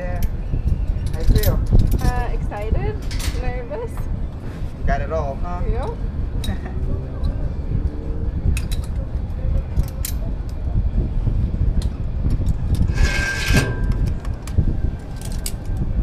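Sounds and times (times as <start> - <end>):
wind rumbling on microphone: 0.0 - 16.0
metallic harness clicks: 15.2 - 15.8.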